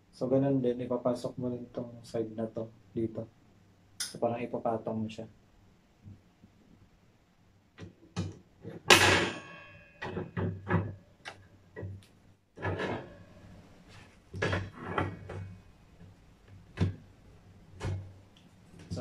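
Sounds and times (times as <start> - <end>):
metal wire rack parts clanking: 8.8 - 10.9, 12.6 - 13.3.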